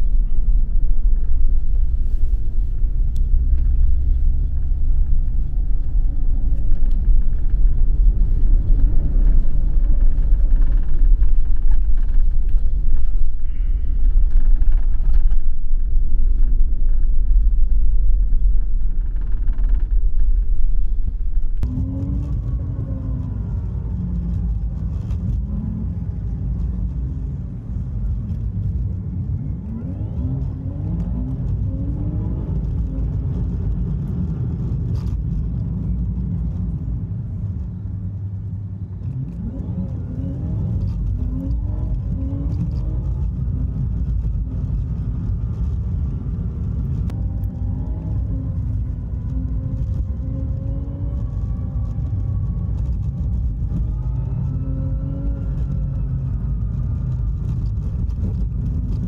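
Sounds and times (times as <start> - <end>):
bus engine and road rumble: 0.0 - 59.0.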